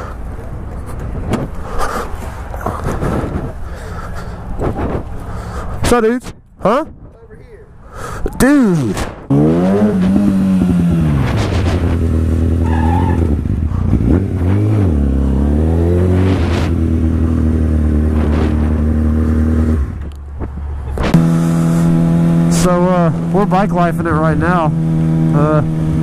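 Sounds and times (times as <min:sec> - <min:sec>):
motorcycle engine running: 0:09.3 - 0:12.6, 0:13.3 - 0:26.0.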